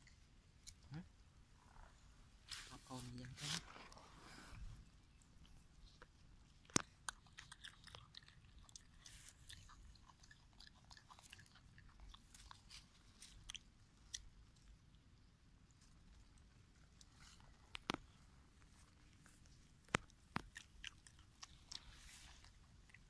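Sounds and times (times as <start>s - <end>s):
monkey chewing a leaf: 4.9s - 14.8s, 15.7s - 23.0s.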